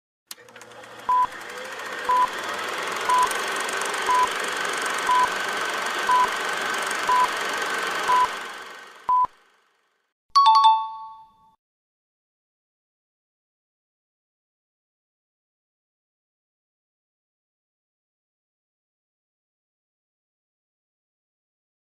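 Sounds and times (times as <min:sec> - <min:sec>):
countdown timer beeping: 0:07.1 - 0:07.3
bright two-note chime: 0:10.4 - 0:11.5.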